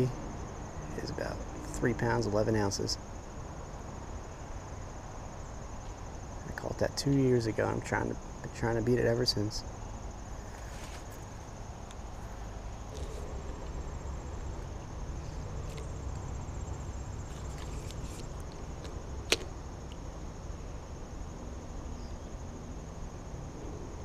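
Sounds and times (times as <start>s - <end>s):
crickets chirring: 0.0s - 24.0s
sharp click: 18.8s - 19.5s.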